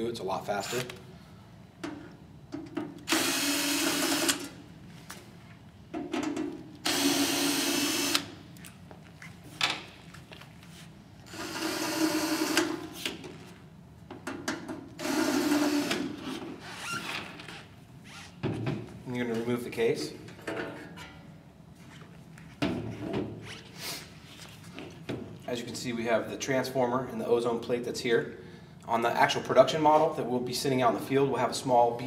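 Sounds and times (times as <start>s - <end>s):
cordless drill removing screws: 3.1s - 4.5s.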